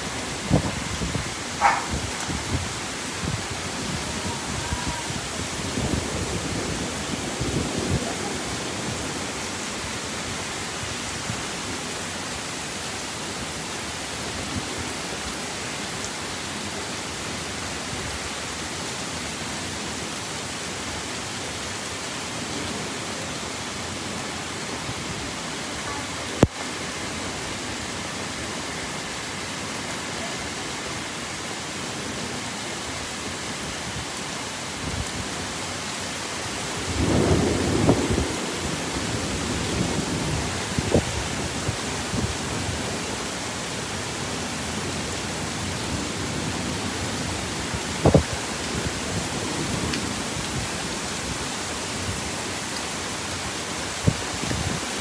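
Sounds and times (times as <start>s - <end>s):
heavy rain pouring: 0.0s - 55.0s
thunder rumble: 36.9s - 41.2s.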